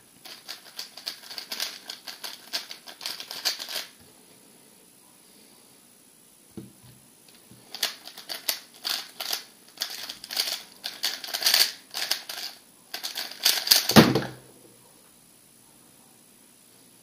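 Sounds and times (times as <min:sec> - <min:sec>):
puzzle cube layers clacking: 0:00.2 - 0:03.9, 0:07.7 - 0:14.0
cube thud on mat: 0:13.9 - 0:14.4.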